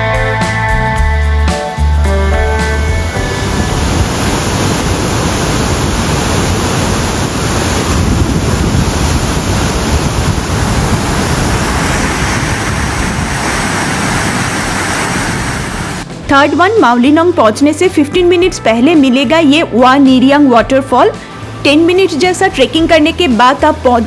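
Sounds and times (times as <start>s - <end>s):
waterfall rushing: 2.6s - 16.2s.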